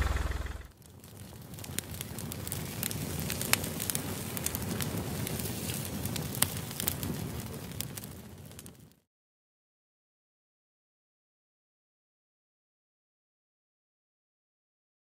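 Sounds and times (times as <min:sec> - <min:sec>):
wood fire crackling: 0:00.0 - 0:09.1.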